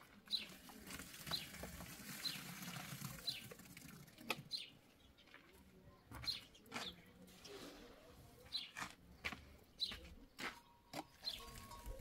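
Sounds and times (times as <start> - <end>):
high bird chirps: 10.6 - 12.0.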